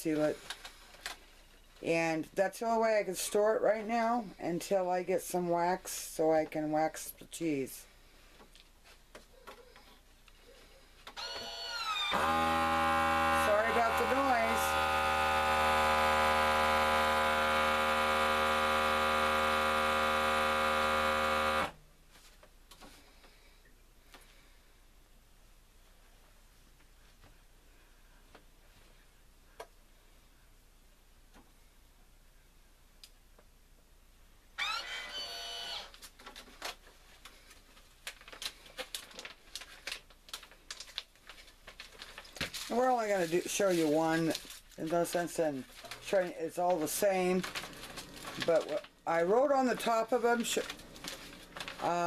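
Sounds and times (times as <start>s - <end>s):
vacuum sealer pump humming: 11.2s - 21.8s, 34.6s - 35.9s
plastic bag crinkling: 35.9s - 52.0s.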